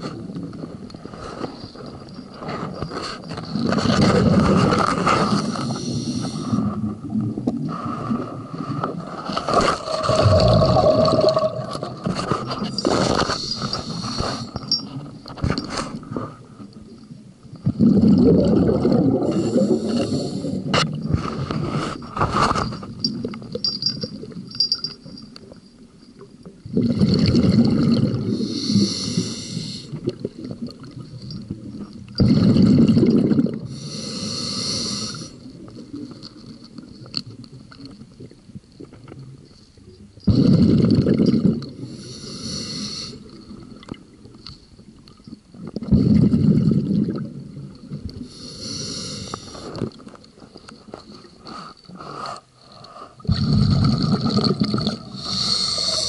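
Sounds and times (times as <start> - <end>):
exhaled bubbles rumbling underwater: 3.8 - 13.1, 16.7 - 21.8, 26.2 - 33.8, 35.4 - 42.0, 43.2 - 48.4, 53.2 - 56.0
regulator hiss on inhale: 5.2 - 6.7, 13.1 - 14.8, 19.3 - 20.7, 28.3 - 30.0, 33.7 - 35.5, 41.8 - 43.4, 48.2 - 49.8, 55.1 - 56.0.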